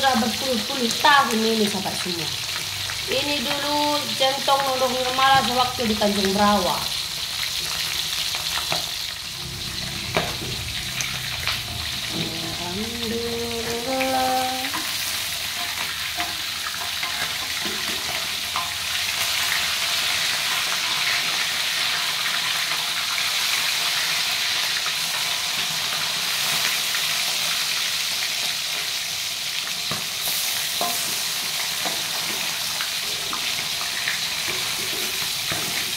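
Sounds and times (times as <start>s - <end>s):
fish sizzling in hot oil: 0.0s - 35.9s
metal spatula scraping wok: 7.6s - 20.2s.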